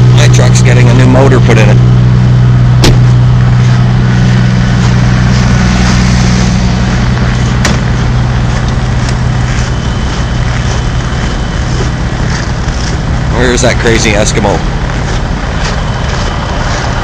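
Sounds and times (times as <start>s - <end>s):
diesel truck engines idling: 0.0s - 17.0s.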